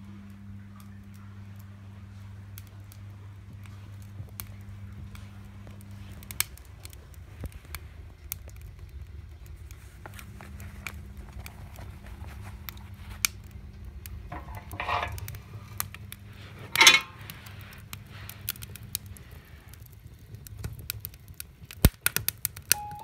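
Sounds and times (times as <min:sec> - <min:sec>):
wood fire crackling: 0:00.0 - 0:23.0
metal stove scraping and clanking: 0:14.2 - 0:17.9
sharp snaps: 0:20.5 - 0:22.8.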